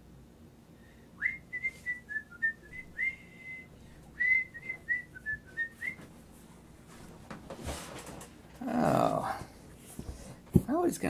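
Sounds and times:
person whistling a tune: 0:01.2 - 0:06.1.

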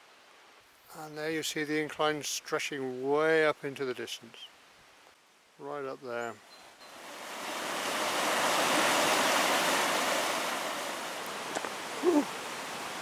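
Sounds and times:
stream rushing over boulders: 0:06.8 - 0:13.0.

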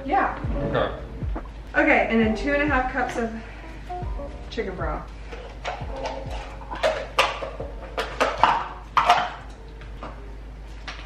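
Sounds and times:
cans and jars clinking: 0:05.4 - 0:09.6.

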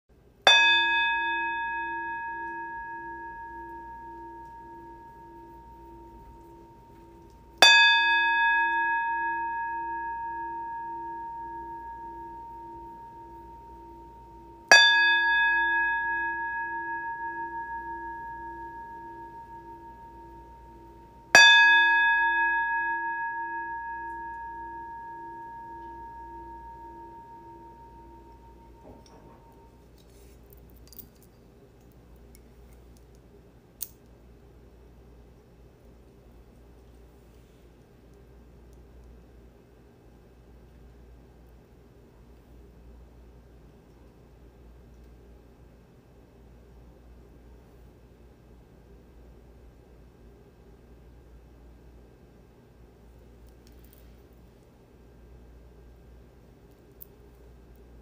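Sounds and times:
singing bowl ringing: 0:00.5 - 0:30.3.

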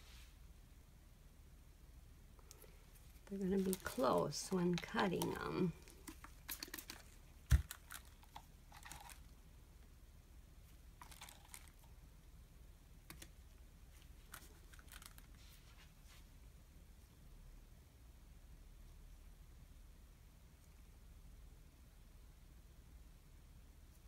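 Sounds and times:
soft handling clicks and rustles: 0:02.4 - 0:09.4, 0:13.0 - 0:16.4.

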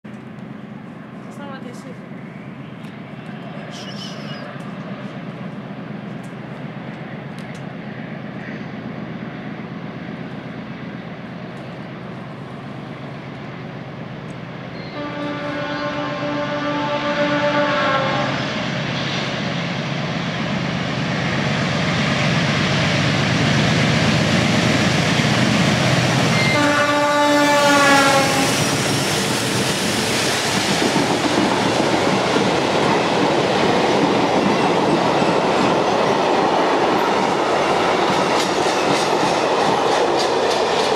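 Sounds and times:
diesel locomotive engine rumbling: 0:00.0 - 0:40.9
train horn: 0:14.8 - 0:18.5, 0:26.3 - 0:28.7
train wheels clacking over rail joints: 0:28.0 - 0:40.9.

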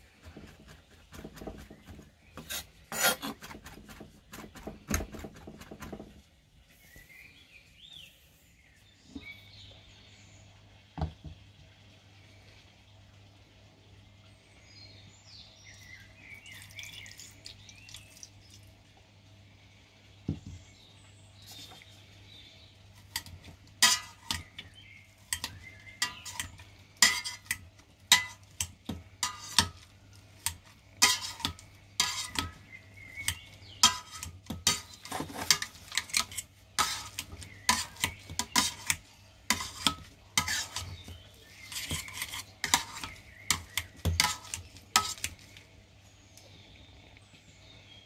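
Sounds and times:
potato masher clanking in metal pot: 0:23.1 - 0:45.4.

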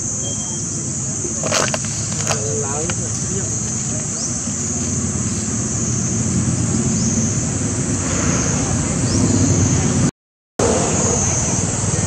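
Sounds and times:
wind buffeting microphone: 0:00.8 - 0:10.1.

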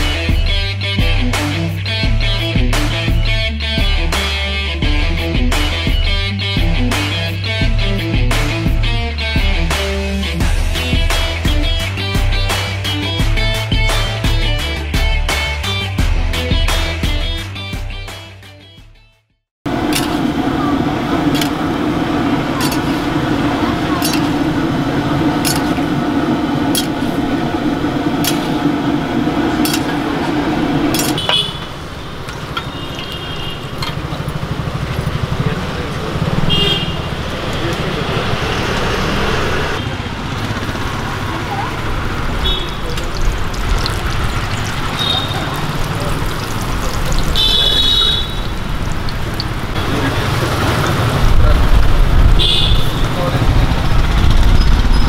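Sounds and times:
street background: 0:00.0 - 0:19.0, 0:19.6 - 0:55.0
metal ladle clinking on pan: 0:22.6 - 0:23.0, 0:24.0 - 0:24.4
oil bubbling while deep-frying: 0:42.4 - 0:51.0.

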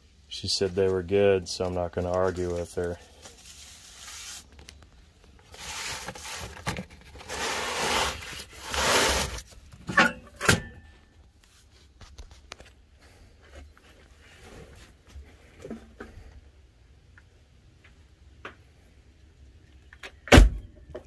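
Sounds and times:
paper cartons rustling: 0:00.6 - 0:09.7.

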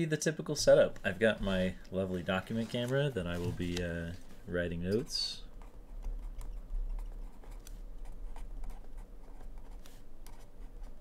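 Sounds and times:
low steady hum: 0:00.0 - 0:11.0
pen scratching on paper: 0:05.6 - 0:11.0.

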